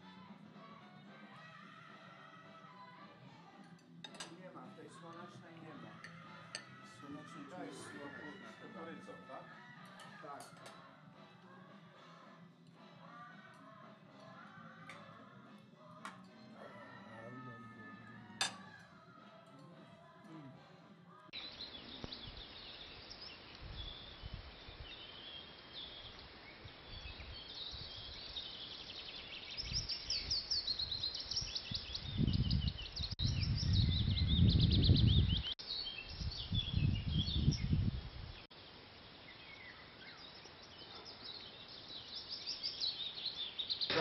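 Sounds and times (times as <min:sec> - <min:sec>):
songbirds singing and chirping: 0:00.0 - 0:20.5, 0:21.1 - 0:44.0
wind rumbling on microphone: 0:23.6 - 0:25.0, 0:29.6 - 0:38.4.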